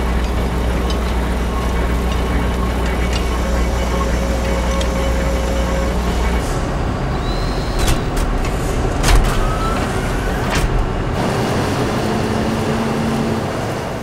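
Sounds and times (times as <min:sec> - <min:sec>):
machinery rumble and hiss: 0:00.0 - 0:14.0.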